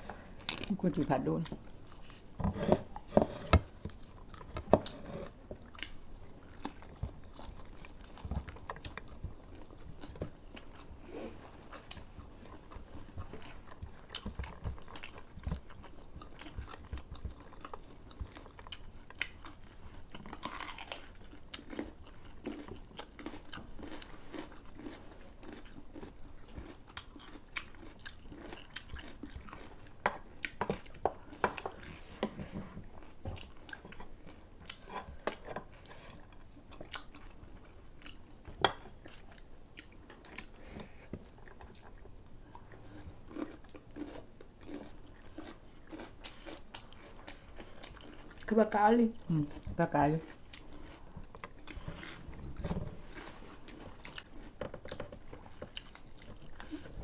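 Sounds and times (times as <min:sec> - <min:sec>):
people chewing and crunching food: 0:00.0 - 0:57.0.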